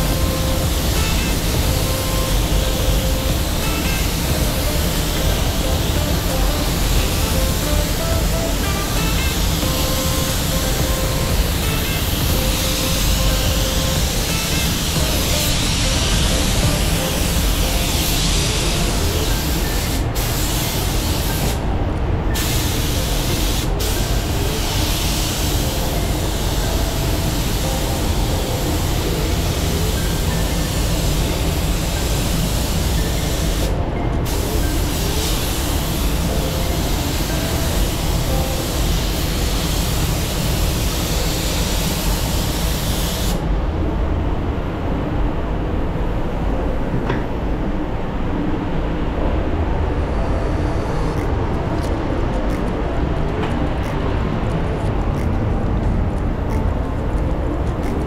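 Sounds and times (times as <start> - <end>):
spray gun hissing: 0.0 - 21.6, 22.4 - 43.4.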